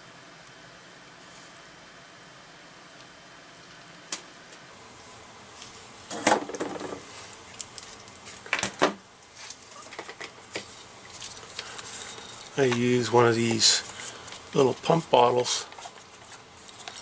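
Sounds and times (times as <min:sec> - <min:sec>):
tools clattering on a workbench: 0:06.1 - 0:07.1, 0:08.4 - 0:09.0, 0:09.9 - 0:12.9.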